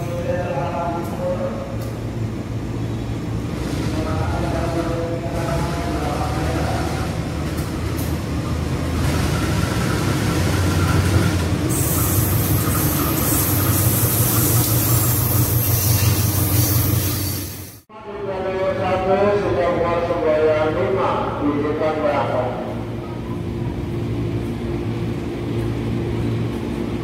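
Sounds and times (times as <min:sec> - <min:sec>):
diesel locomotive engine drone: 0:00.0 - 0:27.0
loud high hiss of train: 0:08.9 - 0:17.9.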